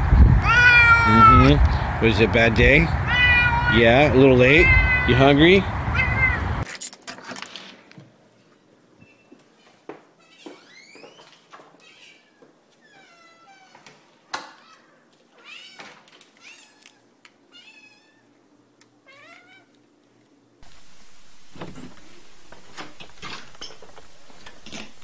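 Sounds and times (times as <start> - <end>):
steady background noise: 0.0 - 12.9, 18.4 - 25.0
cat meowing: 0.4 - 1.6, 3.0 - 6.6, 14.6 - 18.3, 19.1 - 19.8.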